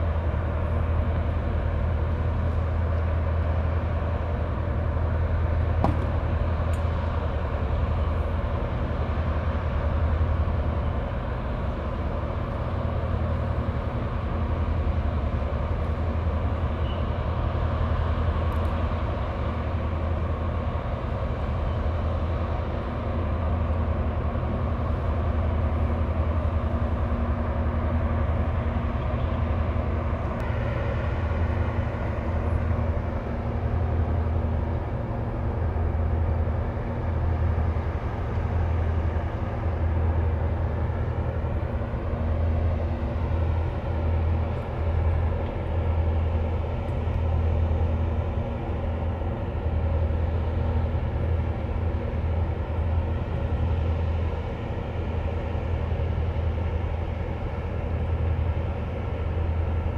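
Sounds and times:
boat diesel engines droning: 0.0s - 59.9s.

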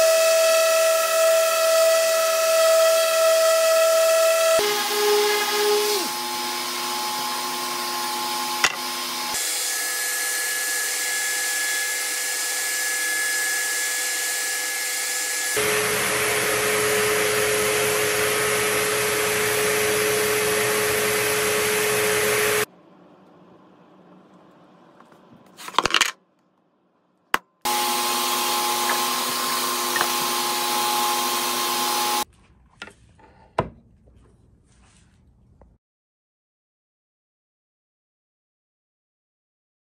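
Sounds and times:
orbital sander on wood: 0.0s - 22.7s, 27.7s - 32.2s
dust extractor drawing air: 0.6s - 12.6s, 15.3s - 22.7s, 27.7s - 32.2s.

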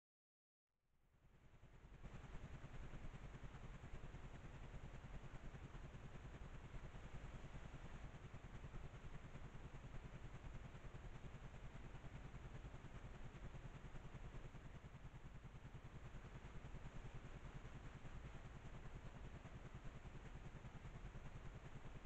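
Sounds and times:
faint low hum and hiss: 1.2s - 22.0s.

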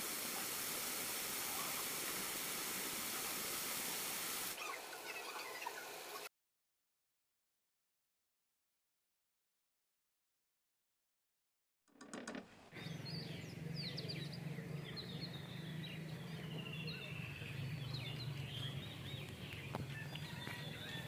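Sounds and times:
birds chirping: 0.1s - 6.3s, 12.7s - 21.0s.

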